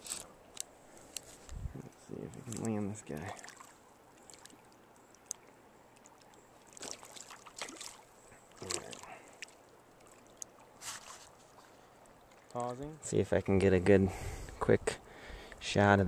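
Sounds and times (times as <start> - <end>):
stream flowing: 0.0 - 15.8
fish splashing in water: 2.4 - 12.5.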